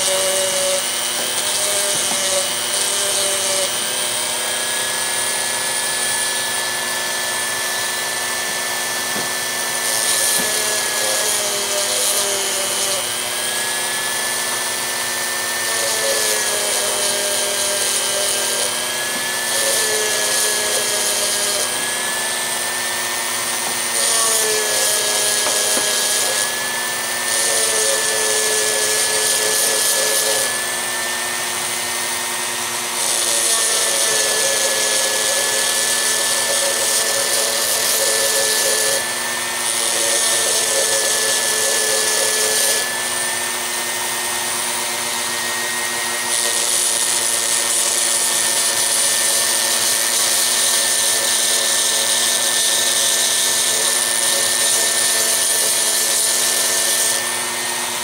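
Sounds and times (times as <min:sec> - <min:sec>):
grinding stone hissing on metal: 0:00.0 - 0:58.0
rotary tool high whine: 0:00.0 - 0:58.0.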